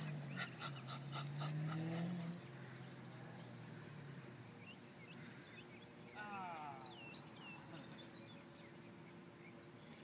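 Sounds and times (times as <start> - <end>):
puppy panting: 0.1 - 2.2.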